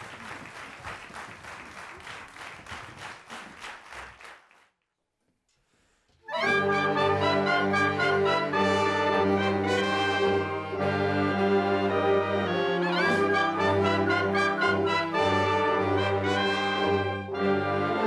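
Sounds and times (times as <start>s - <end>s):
audience applause: 0.0s - 4.7s
wind band brass chords: 6.3s - 18.0s.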